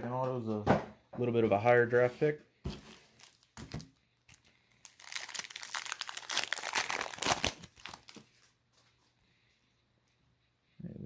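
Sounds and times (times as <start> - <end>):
foil wrapper crinkling and tearing: 2.8 - 8.5.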